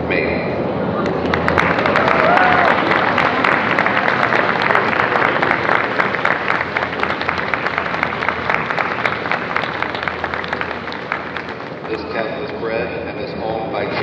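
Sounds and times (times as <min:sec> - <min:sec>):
audience applauding: 0:01.0 - 0:12.6.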